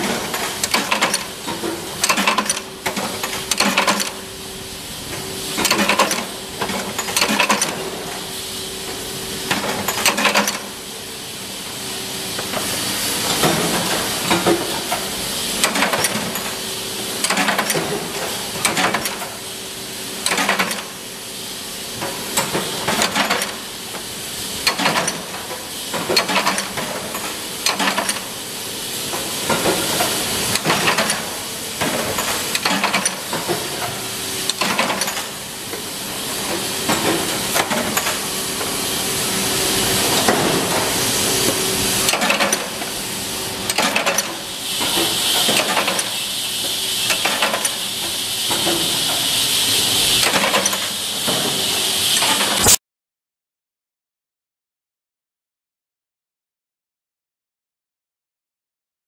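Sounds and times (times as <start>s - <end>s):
sharp machine clacks: 0.0s - 1.3s, 2.0s - 4.2s, 5.6s - 7.8s, 9.5s - 10.7s, 15.6s - 16.6s, 17.2s - 17.8s, 20.2s - 20.9s, 24.6s - 25.3s, 26.1s - 28.3s, 43.7s - 46.3s, 47.0s - 49.3s, 50.2s - 51.4s, 52.1s - 52.8s
machinery hissing: 0.0s - 52.8s.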